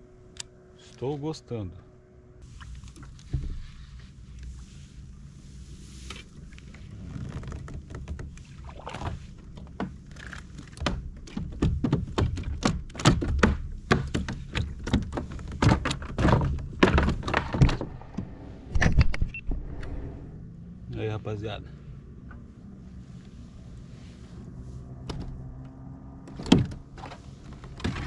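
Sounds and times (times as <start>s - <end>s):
knocks and thuds on kayak: 10.7s - 19.0s
low rumble: 17.6s - 25.9s.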